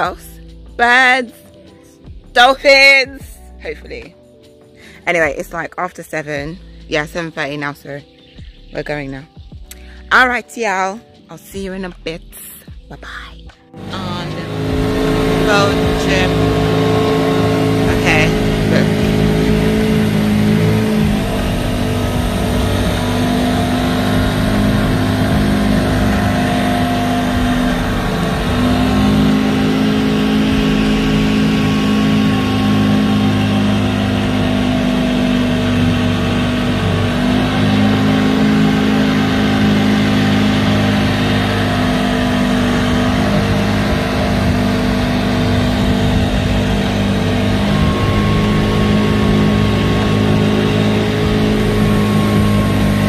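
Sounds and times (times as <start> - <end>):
outboard motor running: 0.0 - 4.1, 13.6 - 53.0.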